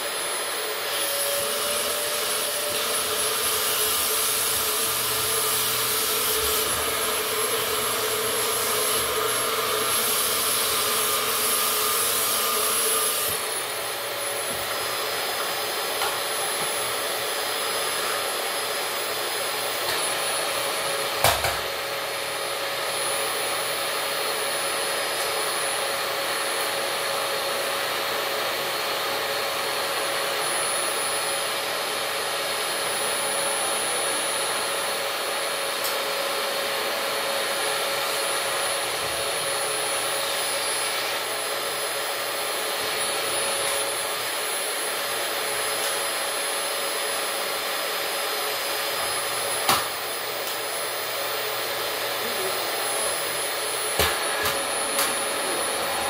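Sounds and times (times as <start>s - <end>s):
vacuum cleaner running: 0.0s - 56.0s.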